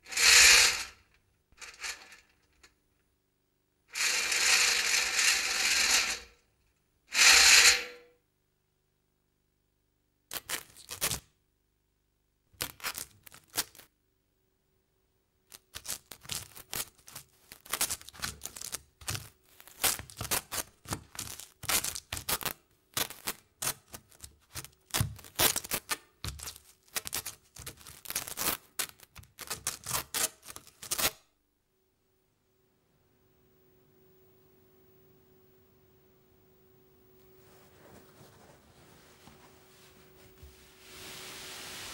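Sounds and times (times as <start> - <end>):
shirt rustling and crackling: 37.3 - 41.9.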